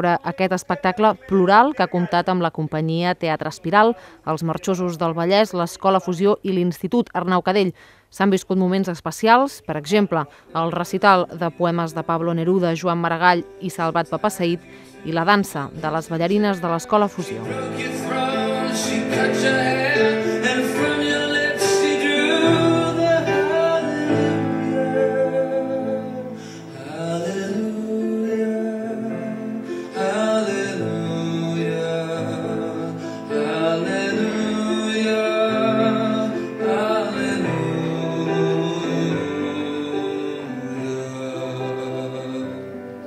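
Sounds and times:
song with singing voice: 0:09.6 - 0:43.0.

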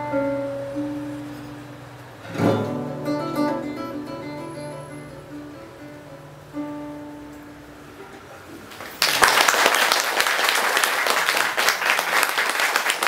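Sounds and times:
classical guitar playing: 0:00.0 - 0:08.7
audience applause: 0:08.7 - 0:13.0.

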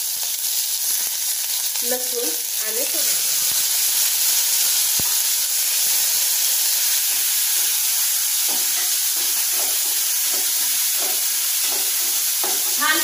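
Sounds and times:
vegetables sizzling in hot oil: 0:00.0 - 0:13.0
spatula stirring in pan: 0:07.8 - 0:13.0.

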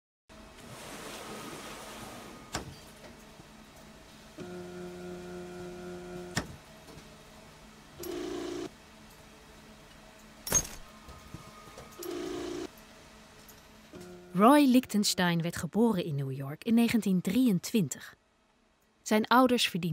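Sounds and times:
steady electronic hum: 0:03.3 - 0:10.4, 0:12.0 - 0:15.9.

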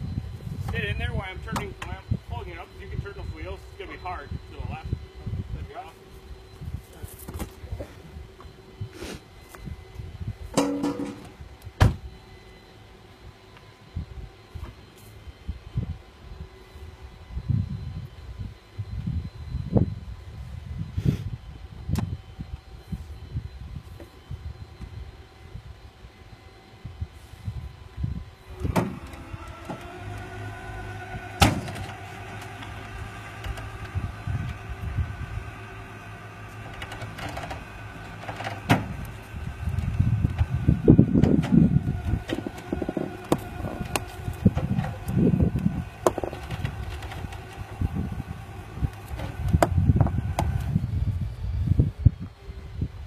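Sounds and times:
wind on microphone: 0:00.0 - 0:03.3, 0:04.3 - 0:05.7, 0:15.4 - 0:25.8, 0:26.8 - 0:31.9, 0:32.8 - 0:35.8, 0:38.6 - 0:53.0
tow truck machinery whining: 0:00.0 - 0:53.0
sharp metal clanks: 0:10.6 - 0:11.3.

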